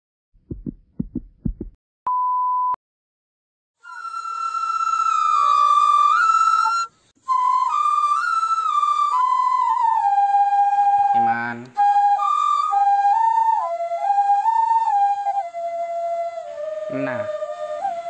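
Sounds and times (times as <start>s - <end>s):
low thumps: 0.4s - 1.8s
solo flute melody: 3.8s - 18.0s.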